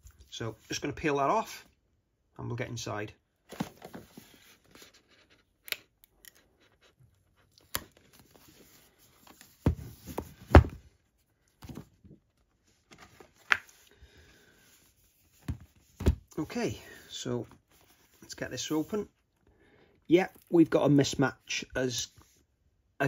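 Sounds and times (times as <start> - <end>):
cardboard box rustling: 3.5 - 5.5.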